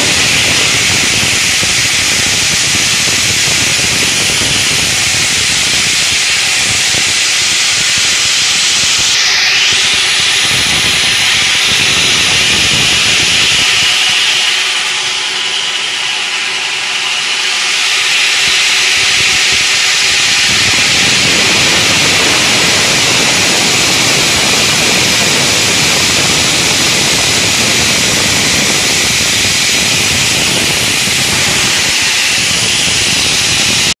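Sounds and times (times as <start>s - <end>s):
saw blades cutting stone hiss: 0.0s - 34.0s.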